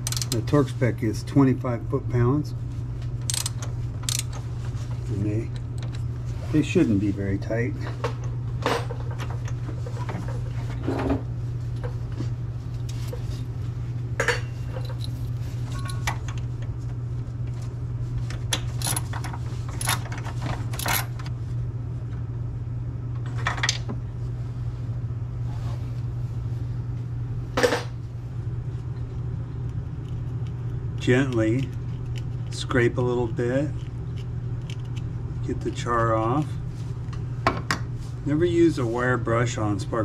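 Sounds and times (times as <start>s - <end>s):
socket wrench clinking on engine: 0.0s - 0.4s, 3.3s - 4.4s, 18.8s - 19.1s, 20.8s - 21.1s
low hum: 0.0s - 40.0s.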